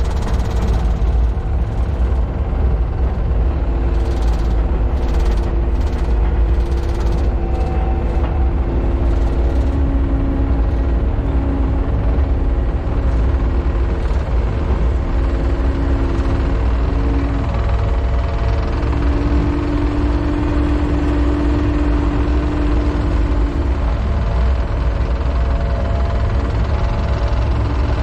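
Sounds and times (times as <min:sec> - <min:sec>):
diesel engine droning under load: 0:00.0 - 0:28.0.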